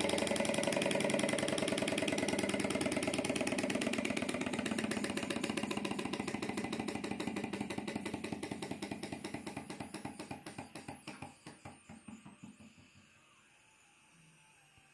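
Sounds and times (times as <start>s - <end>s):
stirling engine clattering: 0.0s - 10.2s.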